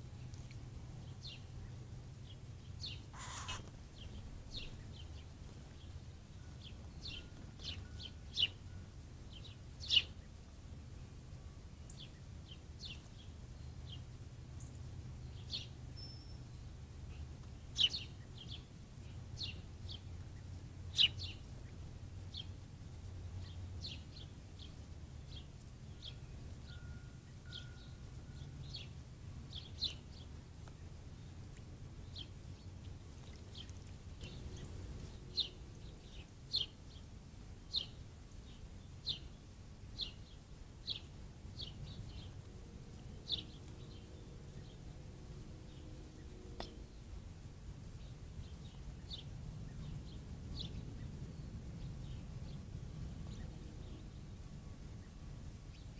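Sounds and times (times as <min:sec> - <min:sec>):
faint low hum: 0:00.0 - 0:55.9
songbird chirping: 0:11.0 - 0:47.2.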